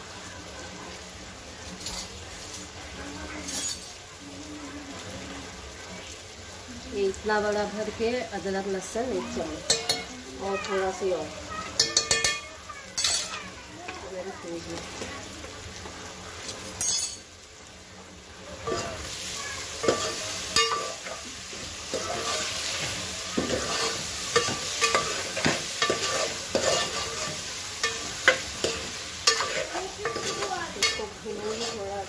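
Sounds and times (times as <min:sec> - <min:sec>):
vegetables sizzling: 0:00.0 - 0:32.0
metal spoon scraping a pot: 0:21.9 - 0:32.0.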